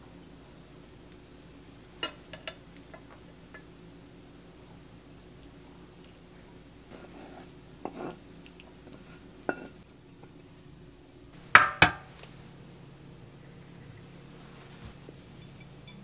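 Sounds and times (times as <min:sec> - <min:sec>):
utensils clinking on dishes: 0:02.0 - 0:02.6, 0:15.2 - 0:16.0.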